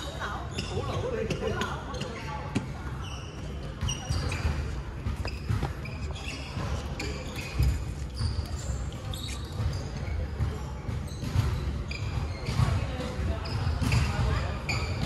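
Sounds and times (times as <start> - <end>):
sneakers squeaking: 0.0 - 15.0
footsteps thudding on wooden court: 3.4 - 6.8.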